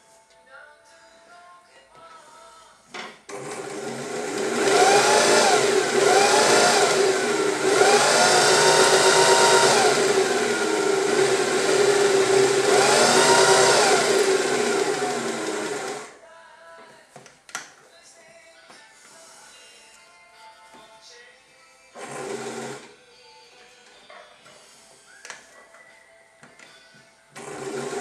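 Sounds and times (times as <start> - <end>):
sewing machine motor whine: 3.3 - 16.2, 22.0 - 22.9, 27.4 - 28.0.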